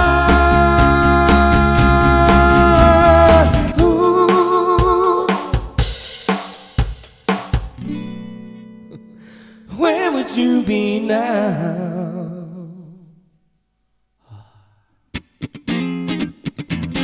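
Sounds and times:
acoustic guitar: 0.0s - 5.8s, 7.6s - 13.1s, 15.1s - 17.0s
man singing: 0.0s - 5.8s, 9.6s - 13.2s
short breath: 9.1s - 9.7s, 14.2s - 15.0s.

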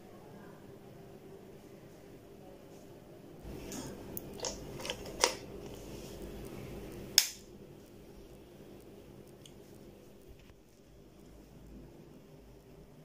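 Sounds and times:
wall socket switch click: 7.2s - 7.4s.

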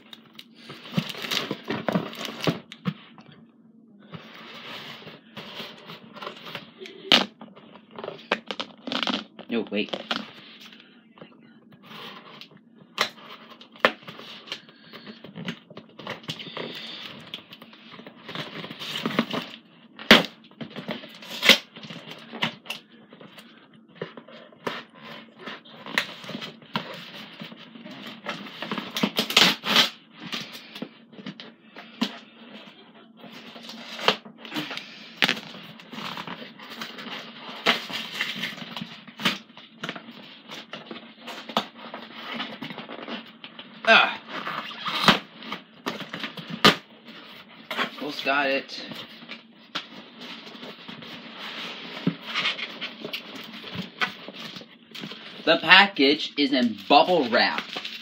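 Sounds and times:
packaging rustling and crackling: 56.8s - 58.0s.

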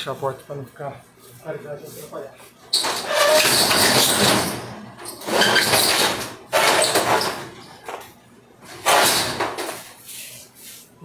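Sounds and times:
steel shutter door rattling: 2.7s - 8.0s, 8.6s - 9.9s.

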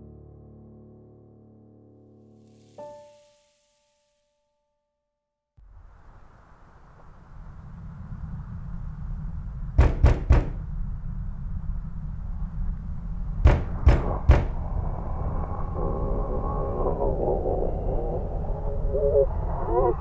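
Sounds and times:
low rumbling drone: 5.6s - 20.0s
sharp knocks: 9.8s - 10.6s, 13.4s - 14.6s.

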